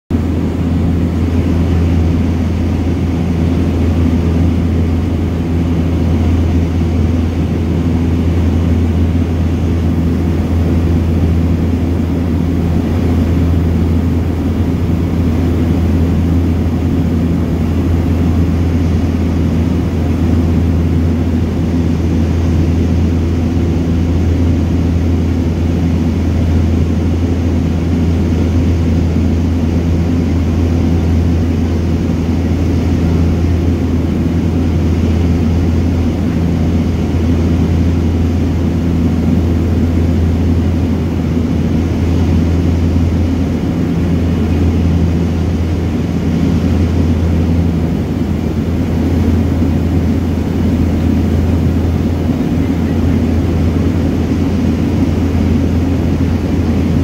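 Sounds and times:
turboprop engines droning: 0:00.1 - 0:57.0.

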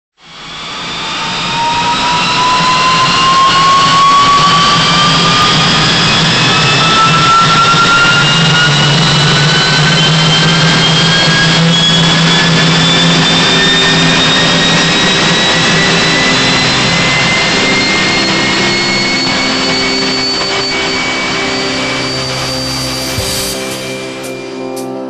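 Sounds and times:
jet turbine whine: 0:00.2 - 0:25.0
dense rushing noise: 0:18.3 - 0:24.8.

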